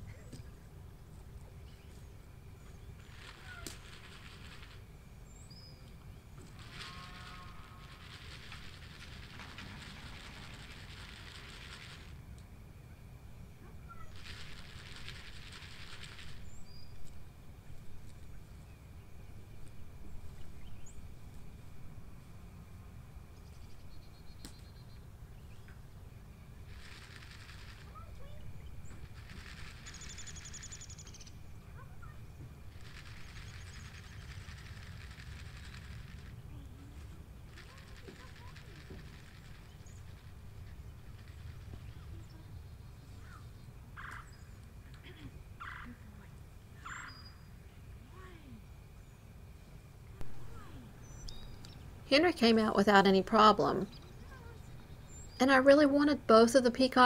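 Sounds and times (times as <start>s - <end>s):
small birds chirping: 0.0s - 12.1s, 13.7s - 17.2s, 18.1s - 21.4s, 23.4s - 46.2s, 46.8s - 49.3s, 50.4s - 55.9s
rapid bird trill: 2.6s - 5.8s, 6.6s - 12.2s, 13.8s - 17.0s, 26.6s - 36.8s, 37.4s - 44.6s, 45.6s - 46.0s, 46.8s - 47.7s
harsh fowl calls: 6.6s - 8.2s.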